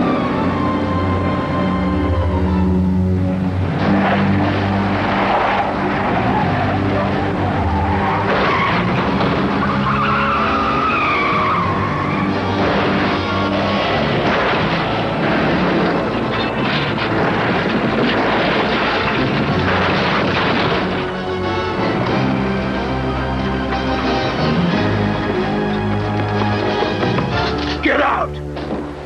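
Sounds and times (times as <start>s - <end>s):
background music: 0.0s - 29.0s
car engines running: 0.0s - 29.0s
tires skidding on gravel: 3.4s - 22.4s.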